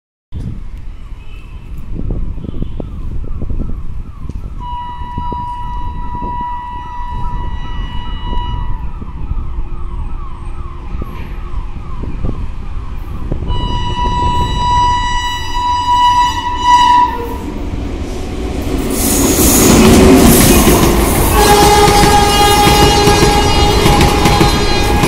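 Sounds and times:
locomotive horn: 4.6 - 9.0, 13.5 - 17.6, 19.7 - 25.0.

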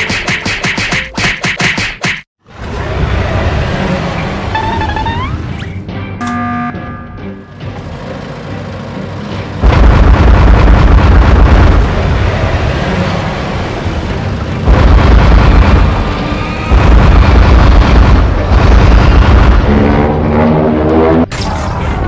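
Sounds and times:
background music: 3.0 - 9.7.

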